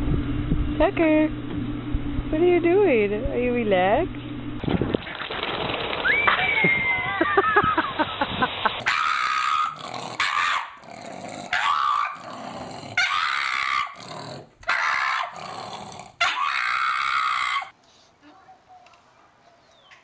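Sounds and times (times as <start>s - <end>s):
dog making drawn-out vocal sounds: 8.8s - 17.7s.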